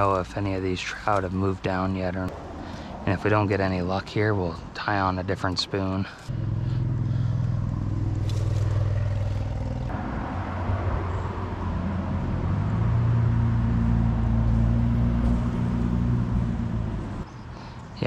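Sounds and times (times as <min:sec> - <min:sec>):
low engine drone: 0:06.2 - 0:17.3.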